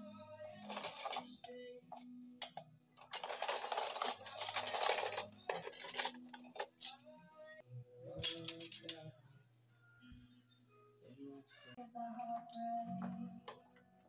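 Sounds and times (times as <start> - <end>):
background music: 0.0 - 14.0
kitchenware rustling and clinking: 0.6 - 1.5, 2.4 - 7.0, 8.2 - 9.1.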